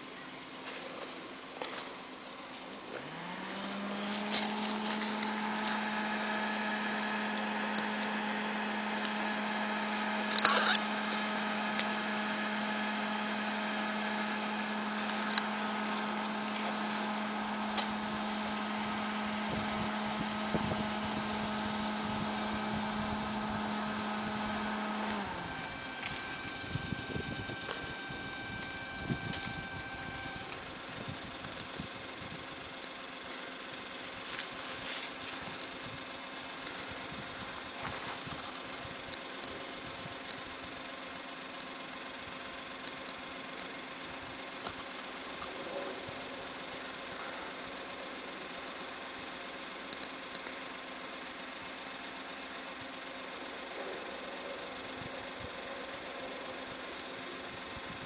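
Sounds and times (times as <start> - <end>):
small motor humming: 0.0 - 58.0
plastic tube rustling: 0.6 - 9.2.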